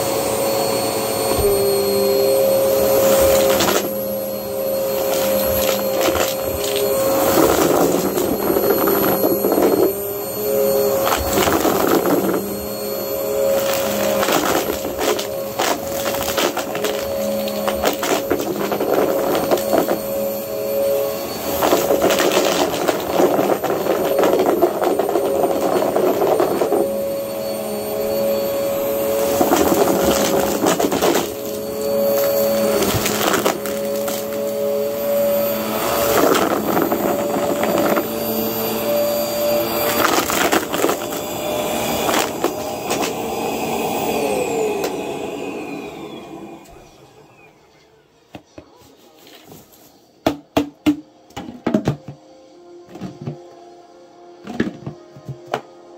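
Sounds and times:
vacuum cleaner motor whine: 0:00.0 - 0:55.9.

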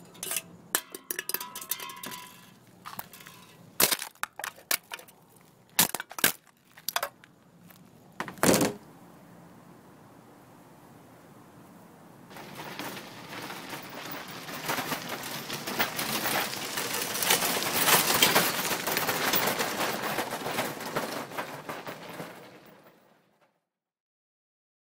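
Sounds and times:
shopping cart rattling on asphalt: 0:00.0 - 0:07.2, 0:12.3 - 0:23.5.

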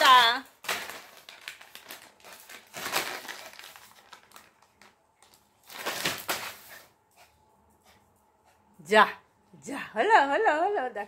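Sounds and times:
plastic packet crinkling: 0:00.0 - 0:06.6.

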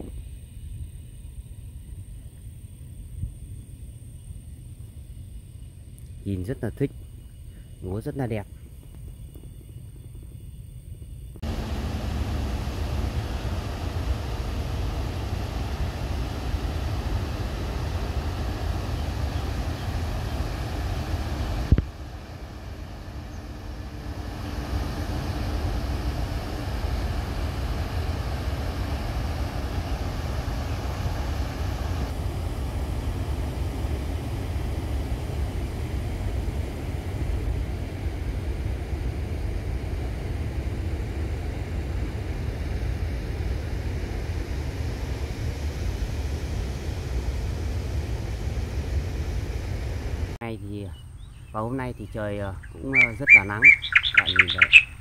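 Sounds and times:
wind buffeting microphone: 0:08.0 - 0:50.4.

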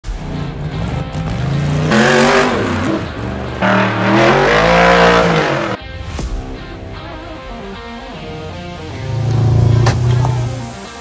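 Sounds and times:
buggy engines revving hard: 0:00.1 - 0:05.8, 0:08.9 - 0:10.7.

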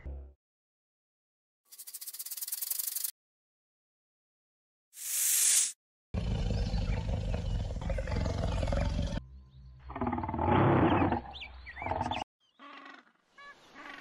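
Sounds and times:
lion roaring: 0:06.2 - 0:09.2, 0:09.9 - 0:12.2.

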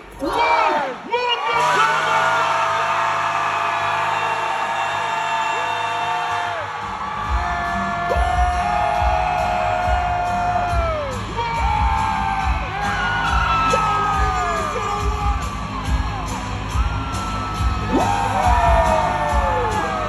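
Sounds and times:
loud concert music with bass beat: 0:06.1 - 0:20.0.

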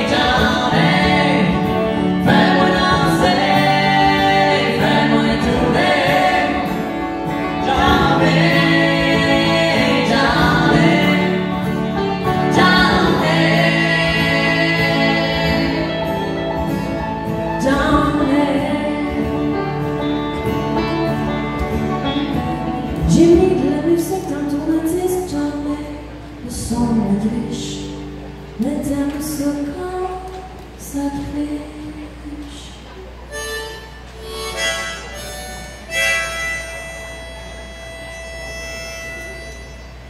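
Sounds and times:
acoustic guitar: 0:00.0 - 0:40.0
woman singing: 0:07.5 - 0:11.6, 0:12.3 - 0:16.4, 0:17.5 - 0:19.8, 0:23.0 - 0:28.0, 0:28.6 - 0:32.9.

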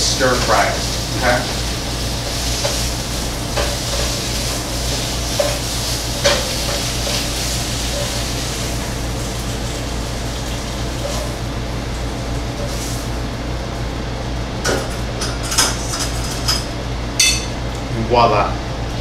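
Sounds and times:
meat sizzling in a frying pan: 0:00.0 - 0:13.3
metal tongs clinking on pan: 0:17.2 - 0:17.6.

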